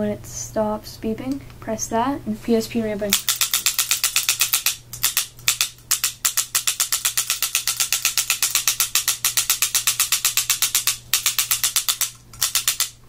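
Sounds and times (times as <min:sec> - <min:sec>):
paintball marker firing rapid clicks: 0:03.1 - 0:13.0.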